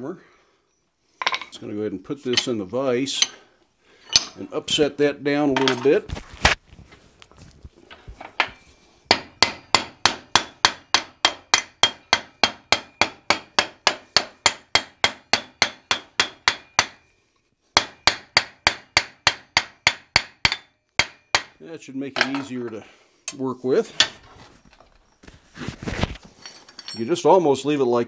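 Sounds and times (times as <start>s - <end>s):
hammer striking hot steel: 9.1s - 17.0s, 17.8s - 21.6s.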